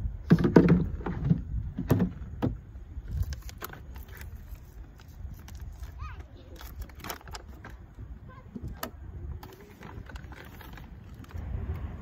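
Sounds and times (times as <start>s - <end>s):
steady low rumble: 7.8s - 12.0s.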